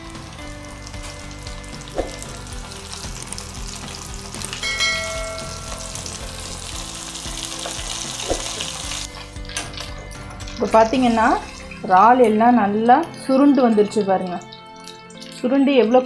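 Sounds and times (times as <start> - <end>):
oil sizzling while deep-frying: 0.0 - 16.0
short bright chime: 4.6 - 6.0.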